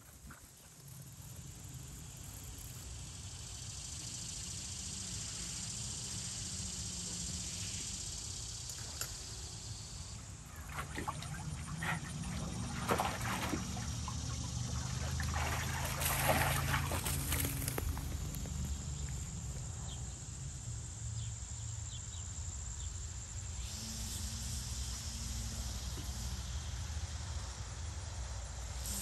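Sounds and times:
steady high hiss: 0.0s - 10.4s
dog splashing in water: 10.5s - 18.4s.

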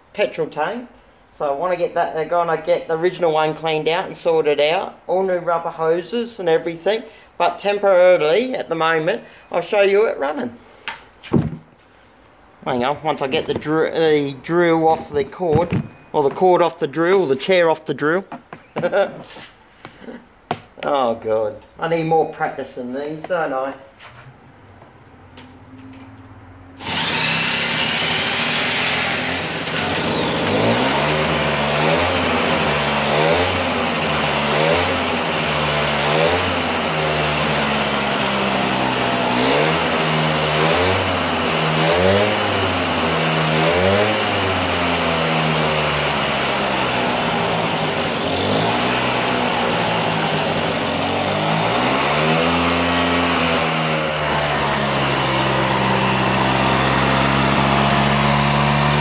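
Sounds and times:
two-stroke engine revving: 26.8s - 59.0s.

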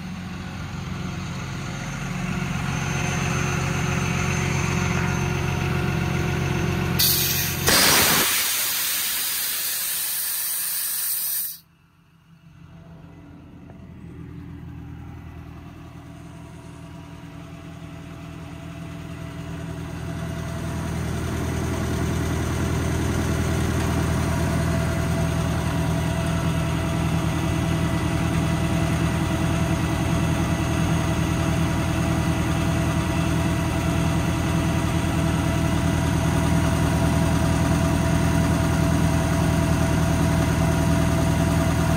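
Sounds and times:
air compressor humming: 6.9s - 11.6s
compressed air hissing: 7.0s - 11.6s.

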